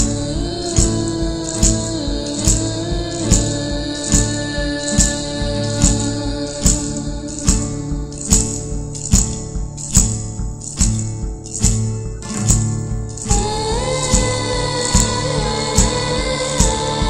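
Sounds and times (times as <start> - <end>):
bright high percussive strikes: 0.0 - 17.0
sustained held chords: 13.1 - 17.0.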